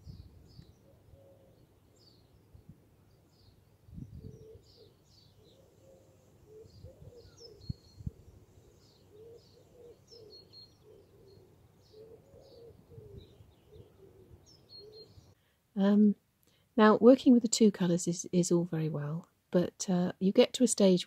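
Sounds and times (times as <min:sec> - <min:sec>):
small birds chirping: 0:00.0 - 0:15.5
pigeon cooing: 0:04.2 - 0:08.3, 0:09.1 - 0:15.2.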